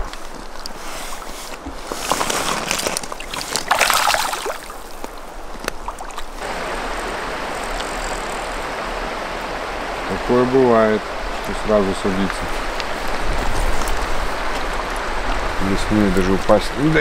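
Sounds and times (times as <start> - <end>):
splashing in shallow water: 0.0 - 6.5
river water flowing: 0.0 - 17.0.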